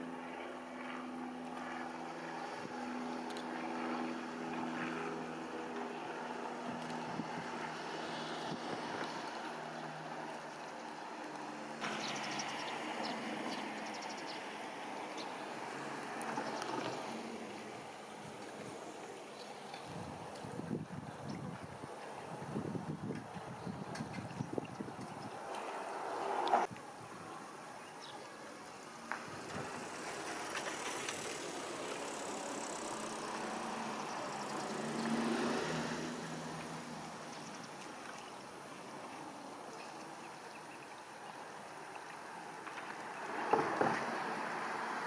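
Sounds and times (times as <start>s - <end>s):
wind on microphone: 19.8s - 25.6s.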